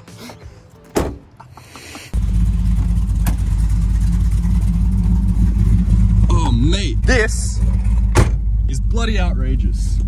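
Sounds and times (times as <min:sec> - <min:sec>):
loud car engine idling: 0:02.2 - 0:09.6.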